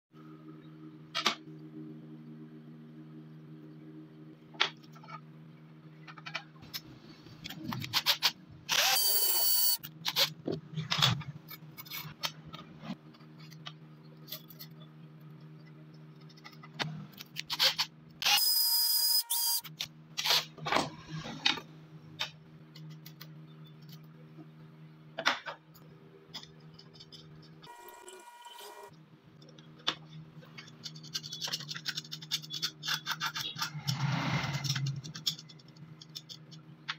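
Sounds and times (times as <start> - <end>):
steady low hum: 0.2 - 8.9.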